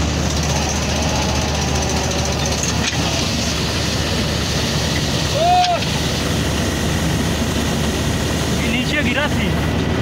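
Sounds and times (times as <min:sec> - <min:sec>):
combine harvester running: 0:00.0 - 0:10.0.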